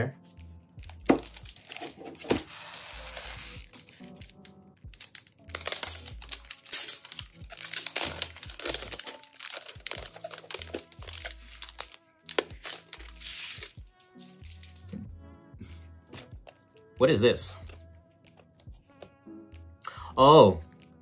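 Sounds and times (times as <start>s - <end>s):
background music: 0.0s - 21.0s
plastic wrapper crinkling: 0.8s - 14.9s.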